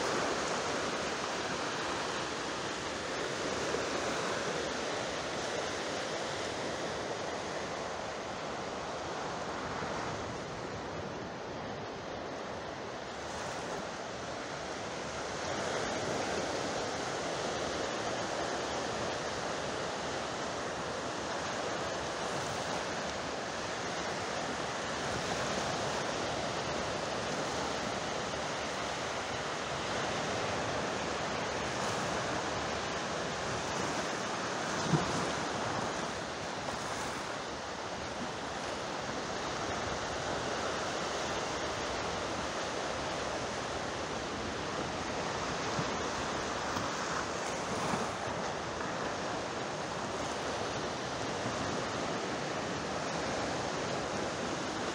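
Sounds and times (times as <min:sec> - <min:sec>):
sea surf washing: 0:00.0 - 0:54.9.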